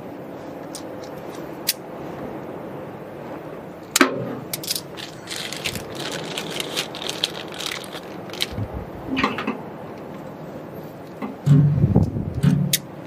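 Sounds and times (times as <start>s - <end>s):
plastic fittings clicking and rattling: 4.6s - 8.6s.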